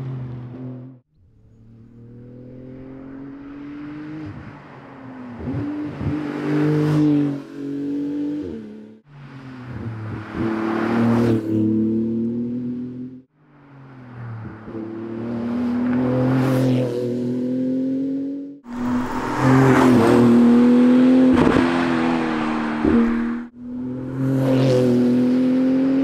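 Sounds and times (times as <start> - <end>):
sports car driving past: 18.7 - 25.3.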